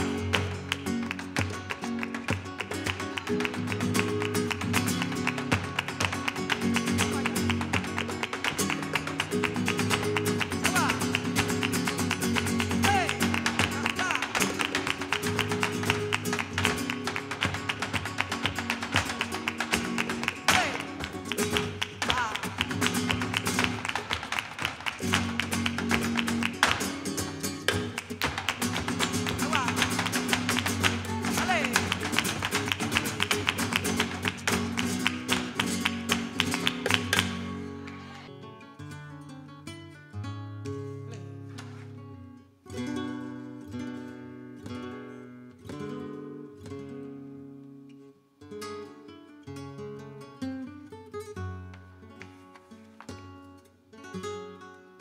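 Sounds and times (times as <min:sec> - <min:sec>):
heeled shoes tapping on stage: 0:00.0 - 0:38.2
acoustic guitar flamenco music: 0:00.0 - 0:55.0.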